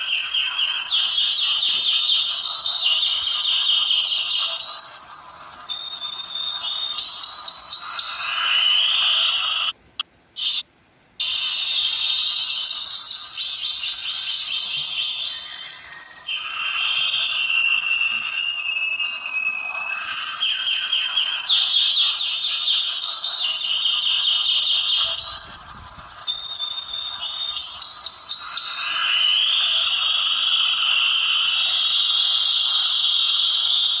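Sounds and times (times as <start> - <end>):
finches chirping: 0.0 - 9.8, 10.4 - 10.6, 11.2 - 34.0.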